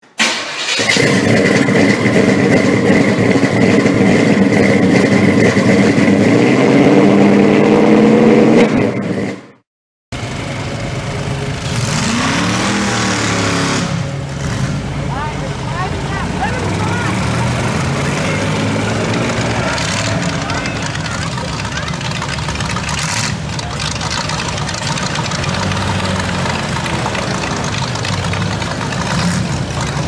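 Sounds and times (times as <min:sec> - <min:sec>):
engine revving high: 0:00.7 - 0:09.4, 0:11.5 - 0:30.0
vehicles driving past: 0:10.2 - 0:30.0.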